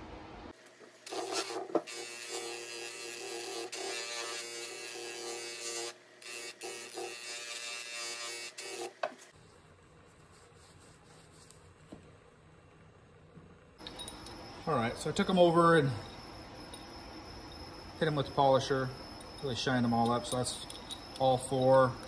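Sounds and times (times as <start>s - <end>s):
faint hum: 0.0s - 1.0s, 9.3s - 22.0s.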